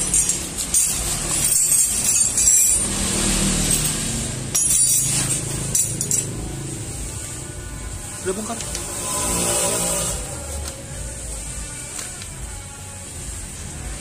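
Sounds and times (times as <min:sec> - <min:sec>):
metallic clinking of tools: 0:00.0 - 0:06.5.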